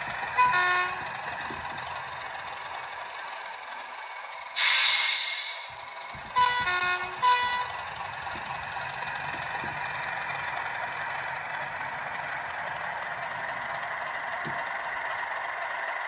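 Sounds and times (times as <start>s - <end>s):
diesel locomotive engine sound: 0.0s - 16.0s
train horn blast: 0.4s - 1.1s, 6.4s - 7.8s.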